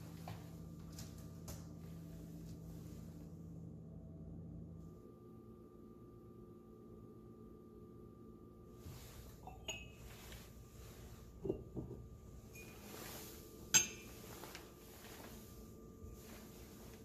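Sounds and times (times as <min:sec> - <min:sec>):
ceramic mugs clinking: 0:09.4 - 0:10.2, 0:11.4 - 0:13.0, 0:13.7 - 0:14.4.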